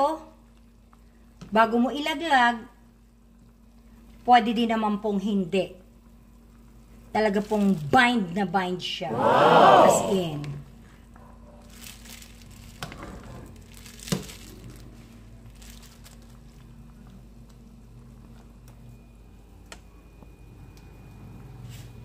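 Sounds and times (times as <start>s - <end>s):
steady low hum: 9.0s - 22.0s.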